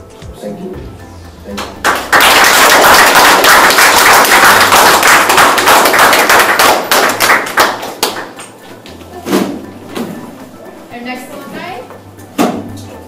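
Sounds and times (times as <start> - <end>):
small audience applauding: 1.6 - 8.5.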